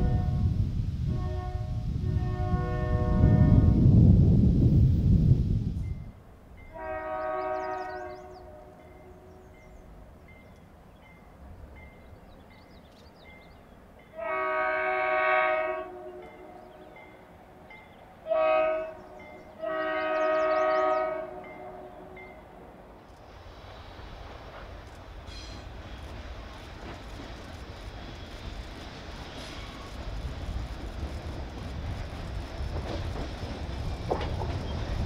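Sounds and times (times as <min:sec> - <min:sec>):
distant locomotive air horn: 0:00.0 - 0:03.8, 0:06.6 - 0:09.7, 0:14.1 - 0:16.8, 0:18.2 - 0:22.6
train rumbling past: 0:00.0 - 0:35.0.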